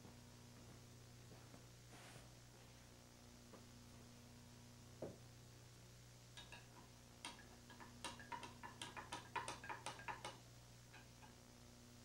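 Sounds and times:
low electrical hum: 0:00.0 - 0:12.0
tape hiss: 0:00.0 - 0:12.0
sharp irregular clicks: 0:06.4 - 0:10.4.

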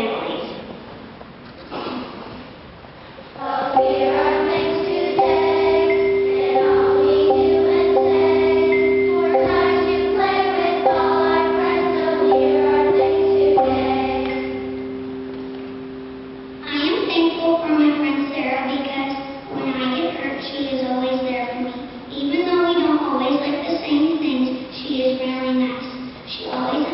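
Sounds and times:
children's choir singing: 0:03.4 - 0:18.3
steady held notes: 0:03.4 - 0:20.2.

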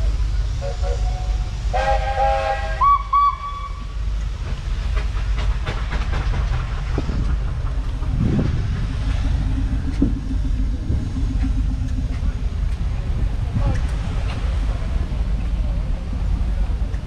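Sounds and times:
diesel engine rumble: 0:00.0 - 0:17.0
steam whistles: 0:00.6 - 0:04.0.

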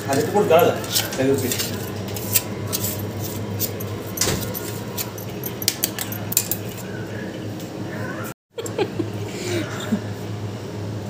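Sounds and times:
metallic clinks and jingles: 0:03.7 - 0:06.8.

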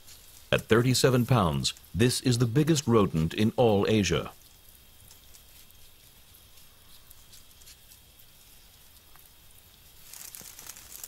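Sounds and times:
rustling of quills: 0:00.0 - 0:00.6, 0:05.1 - 0:11.0
porcupine scratching and ticking: 0:04.4 - 0:11.0.

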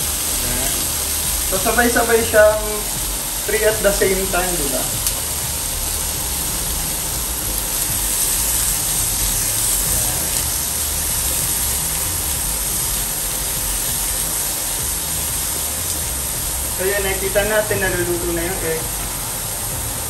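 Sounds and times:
cooling fan running: 0:00.0 - 0:20.0
food sizzling in a pan: 0:00.0 - 0:20.0.

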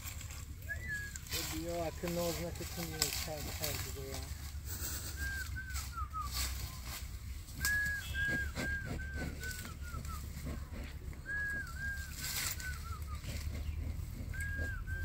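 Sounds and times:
bird singing whistled notes: 0:00.6 - 0:02.2, 0:03.9 - 0:10.4, 0:11.2 - 0:15.0.

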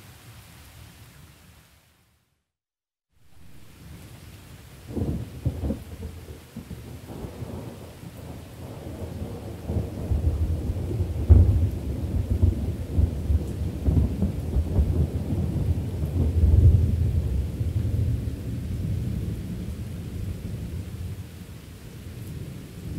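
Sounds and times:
steady rain: 0:00.0 - 0:02.4, 0:03.2 - 0:22.9
rolling thunder: 0:04.9 - 0:21.0
thunder clap: 0:08.6 - 0:16.9.

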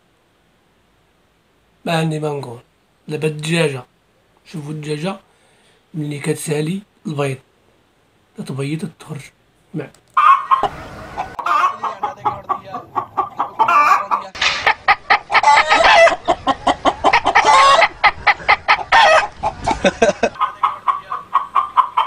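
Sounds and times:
hen cackling: 0:10.2 - 0:22.0
man imitating hen clucks: 0:10.2 - 0:22.0.

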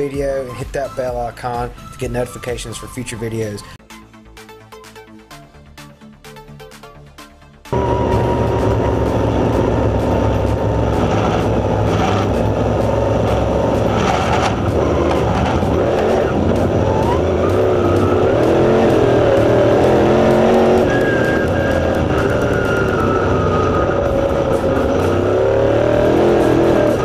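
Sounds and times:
engine running hard at racing speed: 0:07.7 - 0:27.0.

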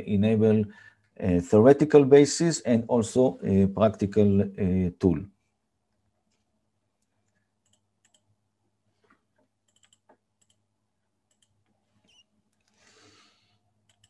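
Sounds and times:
computer keyboard clicks: 0:09.7 - 0:10.6, 0:11.3 - 0:11.6.

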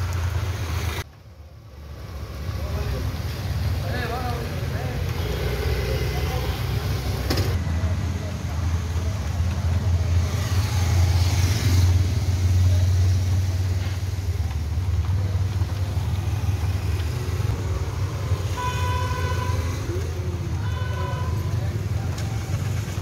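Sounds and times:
street traffic rumbling: 0:00.0 - 0:23.0
car horn toot: 0:18.6 - 0:19.7, 0:20.6 - 0:21.5.

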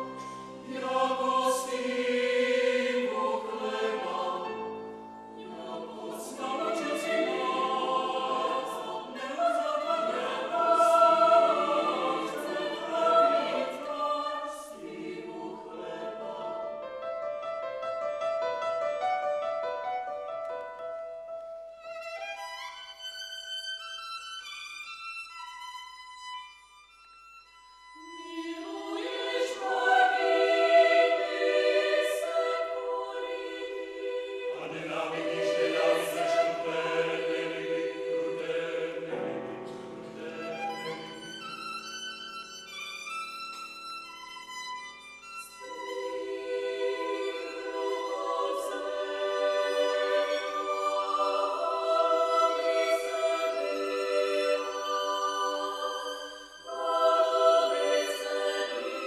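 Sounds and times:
mixed choir singing: 0:00.0 - 0:17.6, 0:28.0 - 0:42.8, 0:45.2 - 0:59.0
solo violin: 0:00.0 - 0:19.4, 0:20.4 - 0:59.0.

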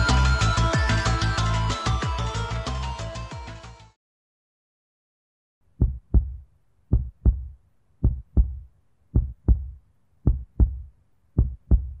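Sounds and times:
heartbeat thumps: 0:05.8 - 0:12.0.

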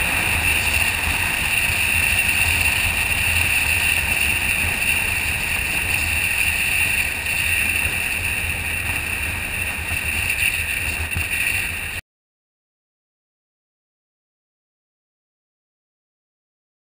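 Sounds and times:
motorcycle engine and road rumble: 0:00.0 - 0:12.0
wind rushing over microphone: 0:00.0 - 0:12.0.

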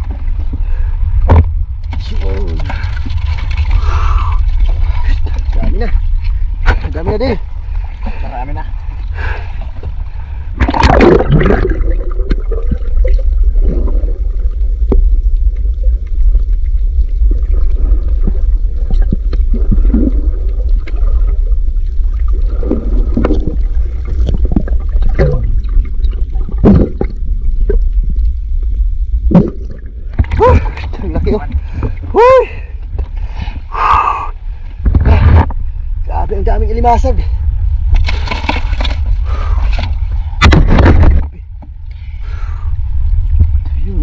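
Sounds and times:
gurgling bubbly water swishes: 0:00.0 - 0:32.1, 0:42.8 - 0:44.0
underwater low rumble: 0:00.0 - 0:44.0.

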